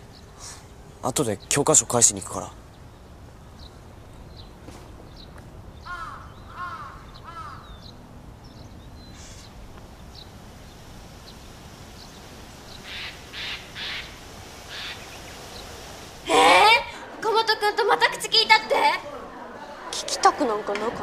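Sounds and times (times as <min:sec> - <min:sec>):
outdoor background hiss: 0:00.0 - 0:21.0
crow cawing: 0:05.9 - 0:07.8, 0:12.8 - 0:15.0.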